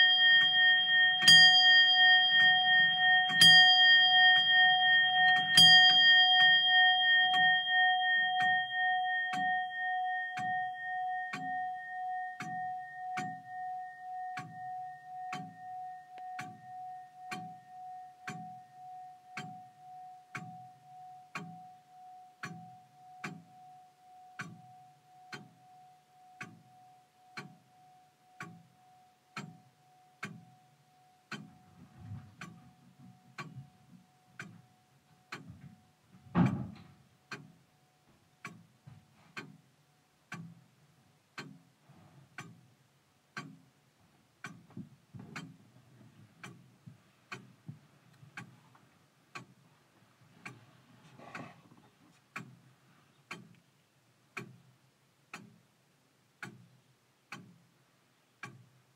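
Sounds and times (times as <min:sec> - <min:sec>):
lingering chime tone: 0:00.0 - 0:20.3
clock ticking: 0:00.0 - 0:58.9.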